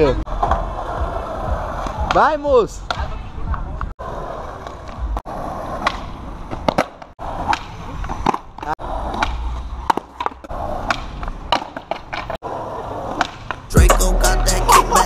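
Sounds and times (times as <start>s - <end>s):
skateboard wheels rolling on asphalt: 0.0s - 13.8s
skateboard clattering across street: 0.3s - 13.8s
skateboard deck clacking on road: 5.8s - 13.8s.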